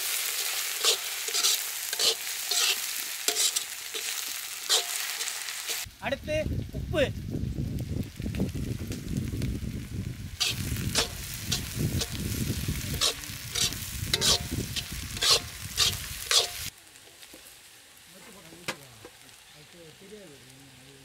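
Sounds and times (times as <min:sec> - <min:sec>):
spatula scraping a pan: 0:00.0 - 0:05.8, 0:10.4 - 0:12.2, 0:13.0 - 0:16.7
onions frying in oil: 0:00.0 - 0:21.0.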